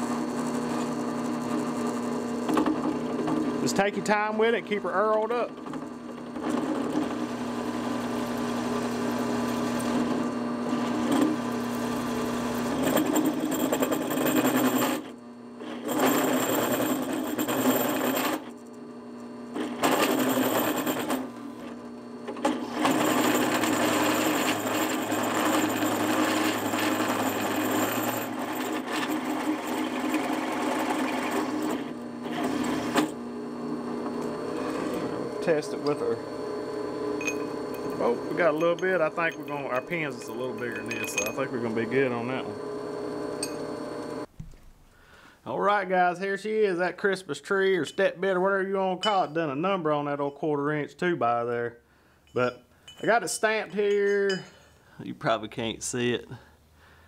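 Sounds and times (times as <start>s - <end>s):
drill bit grinding through steel: 0.0s - 44.3s
drill press motor hum: 0.0s - 45.2s.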